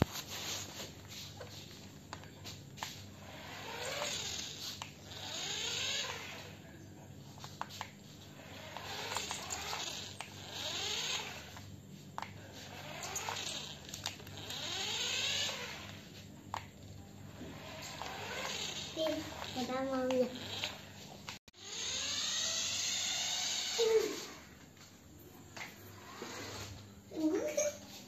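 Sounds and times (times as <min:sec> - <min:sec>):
toy car motor whirring: 0:02.8 - 0:06.6, 0:07.4 - 0:11.7, 0:12.4 - 0:16.7, 0:17.3 - 0:24.5, 0:26.0 - 0:27.7.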